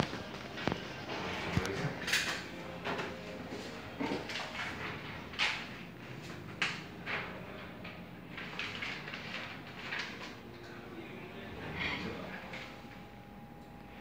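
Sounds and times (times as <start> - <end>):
low steady hum: 10.4 - 14.0.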